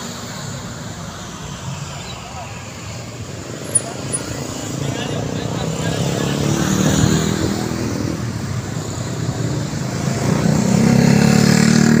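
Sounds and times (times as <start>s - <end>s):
motorcycles and scooters passing: 3.5s - 12.0s.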